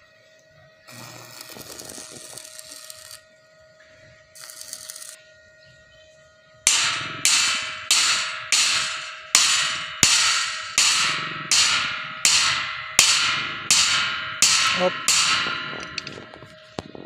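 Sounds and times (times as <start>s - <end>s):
hammer striking a steel rod: 6.7s - 16.2s.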